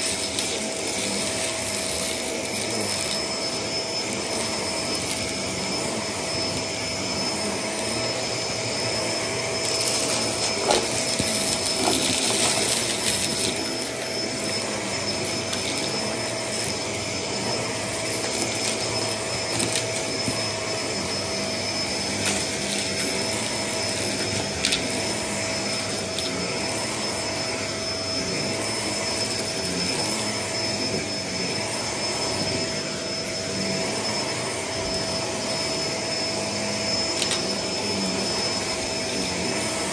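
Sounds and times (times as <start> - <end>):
vacuum cleaner motor whine: 0.0 - 39.9
debris rattling up vacuum: 7.5 - 20.5.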